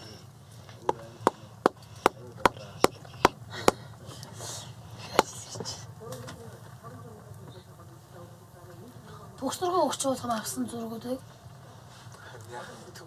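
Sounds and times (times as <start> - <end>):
hatchet chopping kindling: 0.9 - 3.9.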